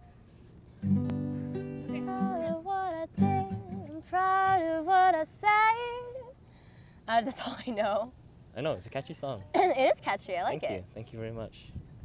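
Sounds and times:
acoustic guitar strumming: 0:00.8 - 0:04.7.

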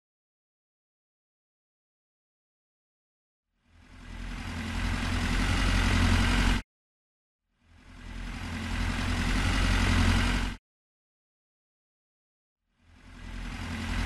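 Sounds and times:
motor running hum: 0:03.7 - 0:06.6, 0:07.7 - 0:10.6, 0:12.8 - 0:14.0.

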